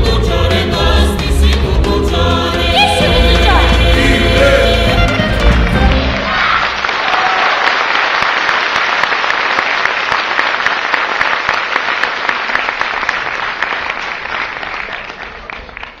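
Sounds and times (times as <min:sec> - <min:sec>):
audience applauding: 0:05.2 - 0:16.0.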